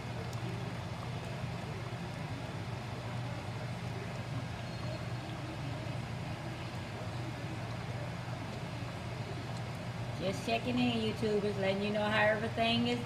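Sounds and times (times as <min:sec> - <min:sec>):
pot boiling and bubbling: 0:00.0 - 0:13.0
steady low hum: 0:00.0 - 0:13.0.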